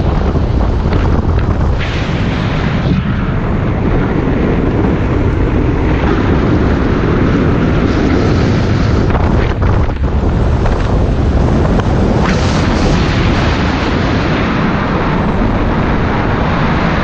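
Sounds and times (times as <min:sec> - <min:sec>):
wheels rumbling on asphalt: 0:00.0 - 0:17.0
wind rushing on microphone: 0:00.0 - 0:17.0.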